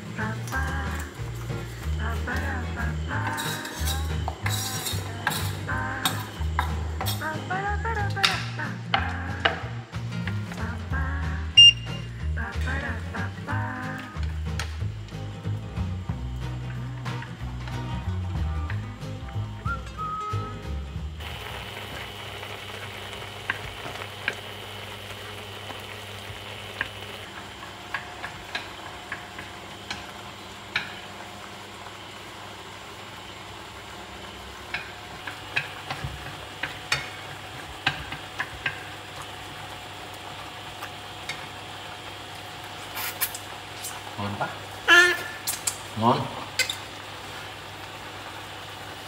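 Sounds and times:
clams hissing in frying pan: 0:00.0 - 0:07.9, 0:21.0 - 0:49.0.

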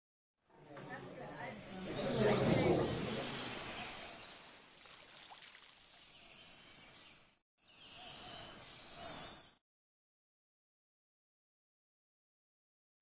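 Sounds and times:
background hiss: 0:01.2 - 0:07.2.

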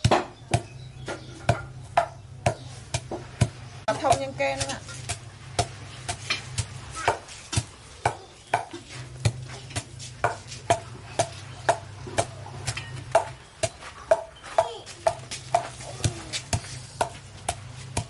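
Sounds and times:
pestle pounding paste in mortar: 0:00.0 - 0:18.0.

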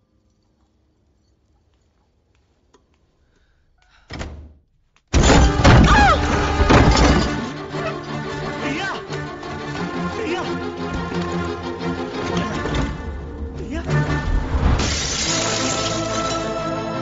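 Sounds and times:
loud dramatic music: 0:05.4 - 0:16.9.

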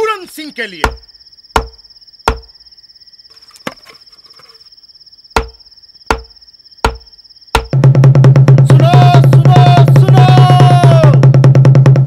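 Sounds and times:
crickets trilling: 0:00.0 - 0:11.4
drum hits: 0:05.4 - 0:12.0.

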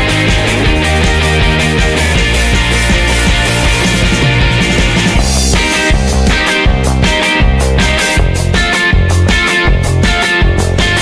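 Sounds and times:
rock music with electric guitar: 0:00.0 - 0:11.0.

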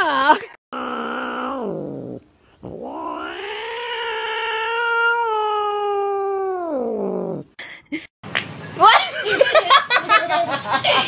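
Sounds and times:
cat yowling: 0:00.7 - 0:02.0, 0:02.7 - 0:07.0.

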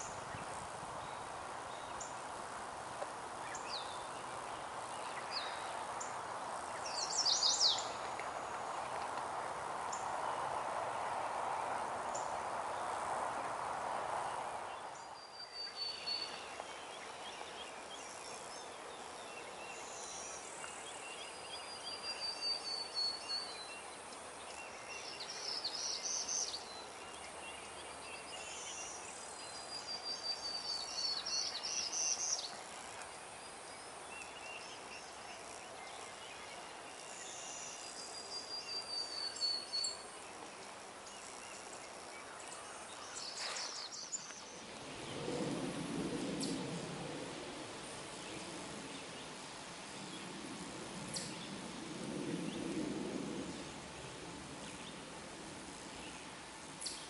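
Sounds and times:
bird singing high song: 0:03.4 - 0:06.1, 0:06.7 - 0:09.0, 0:14.7 - 0:32.6, 0:33.4 - 0:45.3, 0:56.0 - 0:57.0.

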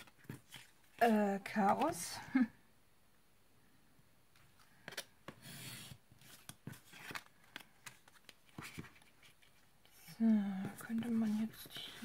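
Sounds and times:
rubbing and scraping on cutting mat: 0:05.3 - 0:07.2.

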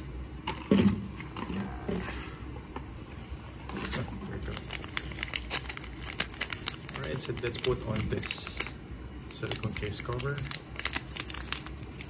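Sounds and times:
plastic bag crinkling: 0:03.9 - 0:12.0.

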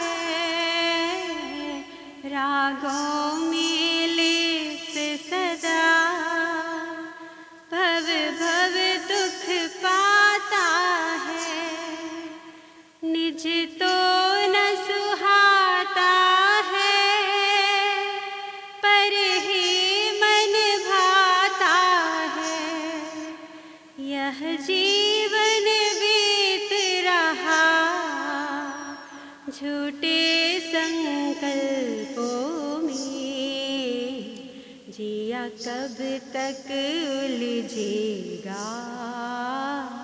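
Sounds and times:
woman singing: 0:00.0 - 0:40.0.

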